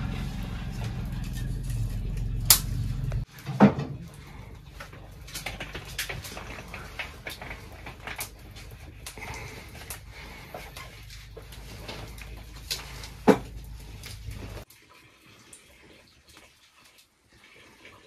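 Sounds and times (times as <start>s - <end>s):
steady low hum: 0.0s - 3.3s
objects clicking and knocking: 0.0s - 14.7s.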